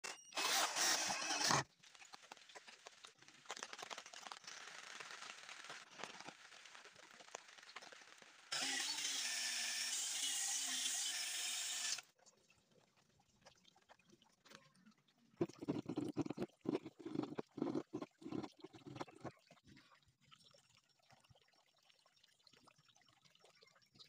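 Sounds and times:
drill driving screw into wood: 0.1s - 1.6s, 8.5s - 12.0s
soft scratching and clicking: 15.4s - 19.4s.

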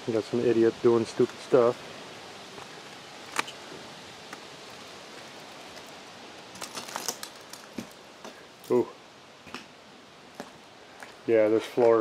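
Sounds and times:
faint hiss: 0.0s - 12.0s
footsteps on broken glass: 6.6s - 8.4s.

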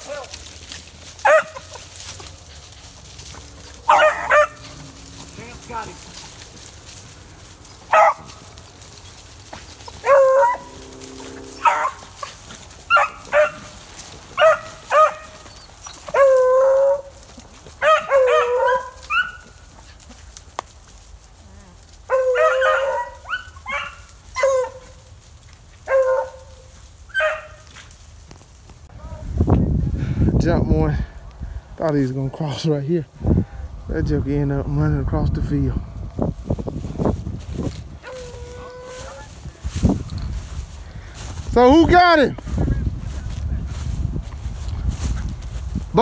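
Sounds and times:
hounds baying and barking: 0.0s - 28.0s, 37.1s - 41.5s.

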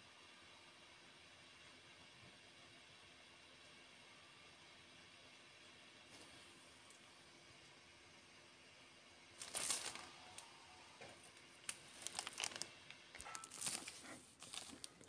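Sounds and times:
plastic crinkling: 9.4s - 10.5s, 11.1s - 15.0s.

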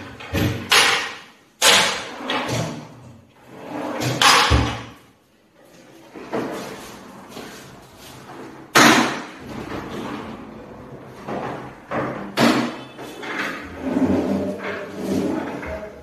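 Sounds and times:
sliding doors rolling on track: 13.6s - 15.9s.

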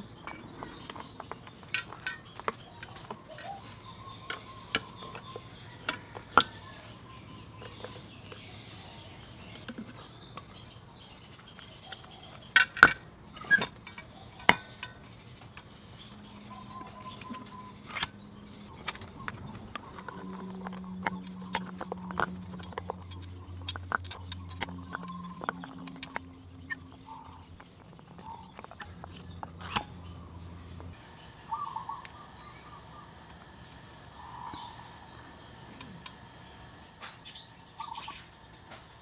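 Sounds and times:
low hum: 0.0s - 39.0s
hand tools clicking on metal: 0.1s - 8.5s, 11.4s - 30.1s, 32.0s - 33.4s.

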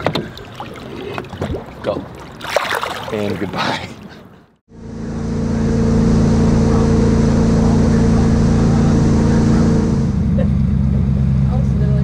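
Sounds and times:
water rushing: 0.0s - 4.2s
wind: 0.0s - 12.0s
boat engine drone: 4.6s - 12.0s.

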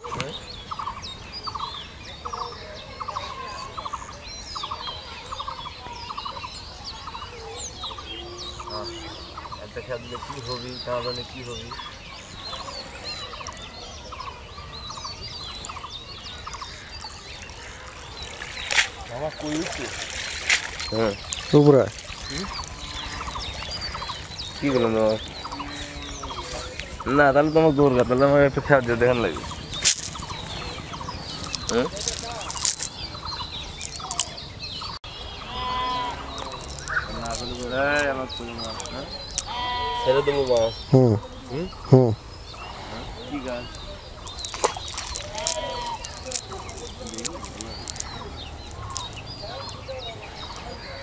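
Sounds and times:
birds chirping: 0.0s - 51.0s
drawn-out animal calls: 7.2s - 13.6s, 16.4s - 34.3s, 35.2s - 51.0s
rattling bird call: 35.4s - 40.7s, 43.6s - 49.8s.

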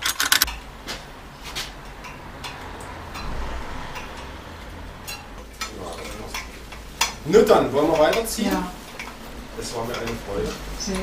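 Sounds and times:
low rumble: 2.8s - 5.4s.

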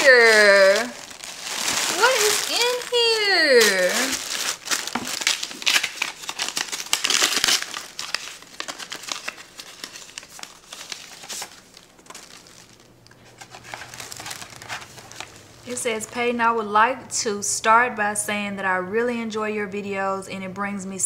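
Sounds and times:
paper packaging crinkling: 0.0s - 16.4s.

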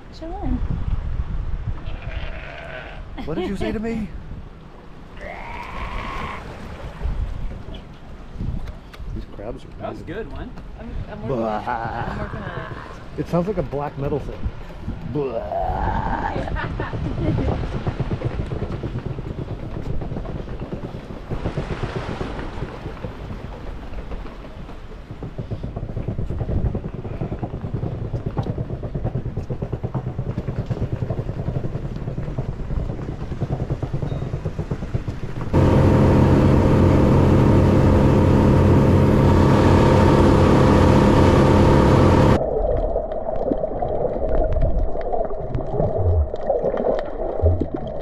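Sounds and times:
motor engine running: 26.3s - 42.4s
rough noise: 35.5s - 42.5s.

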